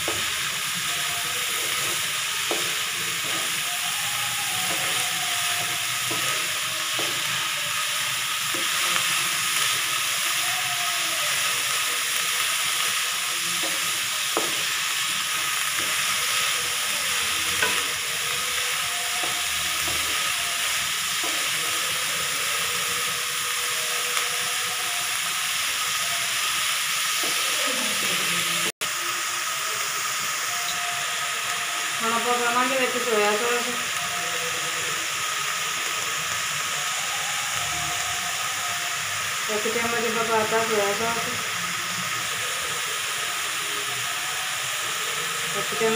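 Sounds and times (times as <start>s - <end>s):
spatula stirring in pan: 0.0s - 25.7s
vegetables sizzling in oil: 0.0s - 45.9s.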